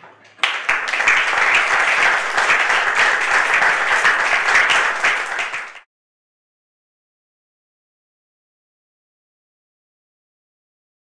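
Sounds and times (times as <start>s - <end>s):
audience applauding: 0.4s - 5.9s.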